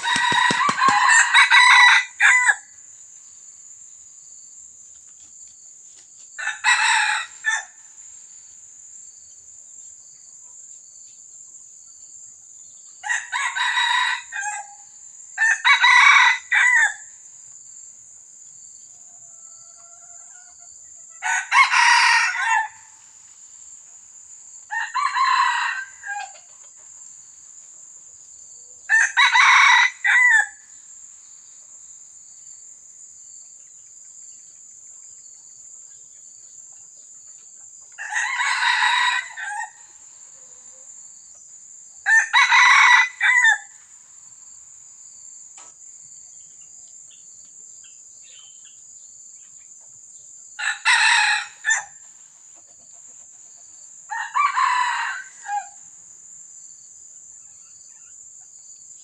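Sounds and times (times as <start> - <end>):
rooster crowing: 0.0 - 2.7, 6.4 - 7.8, 13.0 - 17.1, 21.2 - 23.0, 24.7 - 26.5, 28.9 - 30.6, 38.0 - 40.0, 42.0 - 43.8, 50.6 - 52.0, 54.1 - 55.8.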